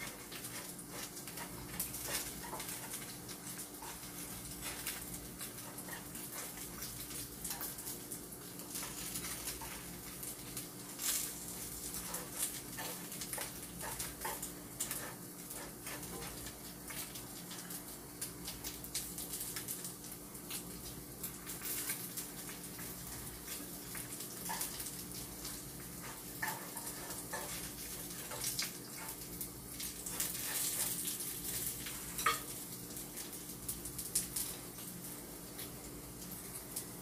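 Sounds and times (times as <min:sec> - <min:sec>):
pork cutlets sizzling in a pan: 0:00.0 - 0:37.0
metal chopsticks scraping a pan: 0:26.0 - 0:29.2.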